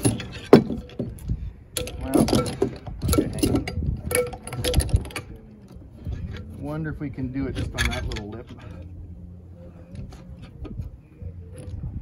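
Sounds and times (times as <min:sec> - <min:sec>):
metal clinks and knocks: 0:00.0 - 0:06.5.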